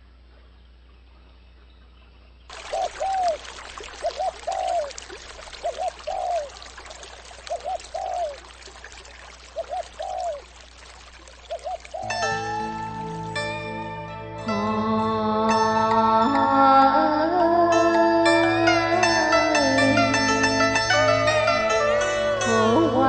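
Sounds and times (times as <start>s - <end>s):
running water stream: 2.5s - 14.0s.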